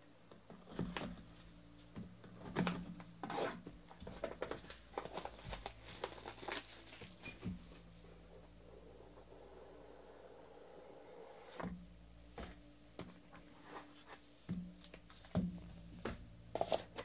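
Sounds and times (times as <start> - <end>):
plastic shrink-wrap tearing: 4.1 - 7.3.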